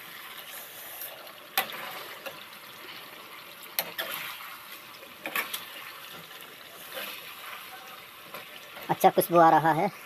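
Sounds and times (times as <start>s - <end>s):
curry sizzling and bubbling: 0.0s - 10.0s.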